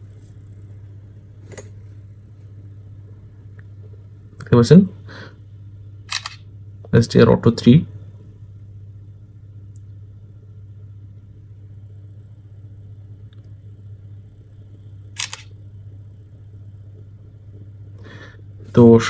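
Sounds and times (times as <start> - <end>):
steady low hum: 0.0 - 19.0
phone camera shutter sound: 6.1 - 6.4, 15.2 - 15.5.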